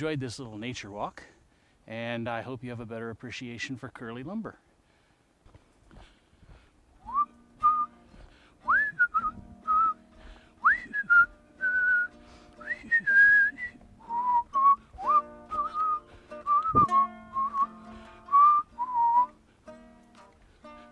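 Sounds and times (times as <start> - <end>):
whistled melody: 7.1 - 8.0, 8.6 - 10.0, 10.6 - 19.4
plucked string accompaniment: 7.3 - 20.9.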